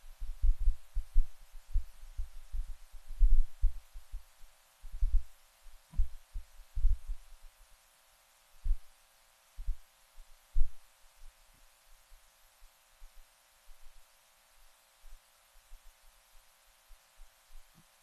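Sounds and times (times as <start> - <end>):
dull low thumps: 0.2 - 4.3, 4.9 - 5.3, 5.9 - 7.2.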